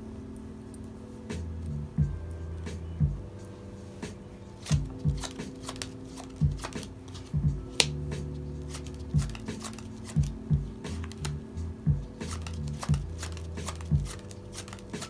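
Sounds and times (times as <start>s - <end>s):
background music with deep bass: 0.0s - 15.0s
playing cards clicking and snapping: 4.6s - 8.0s, 8.6s - 10.3s, 10.9s - 11.4s, 12.2s - 15.0s.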